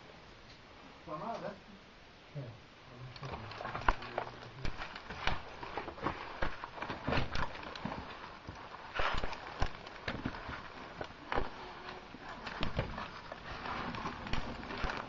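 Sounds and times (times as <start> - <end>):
gear and boots knocking on rock: 12.5 - 13.3.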